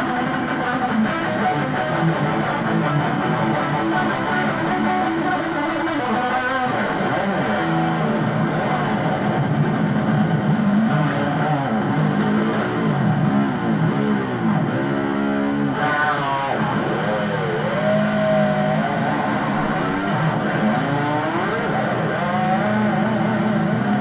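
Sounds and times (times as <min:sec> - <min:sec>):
electric guitar lead with bends: 0:00.0 - 0:24.0.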